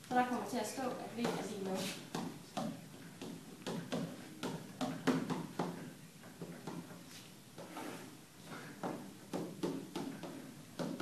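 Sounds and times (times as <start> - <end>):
chalk scratching on chalkboard: 1.3 - 2.1.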